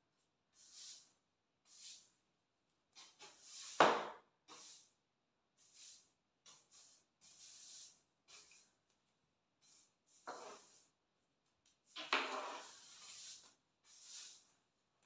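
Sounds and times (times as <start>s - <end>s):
swishing rubs on a surface: 12.3s - 14.5s.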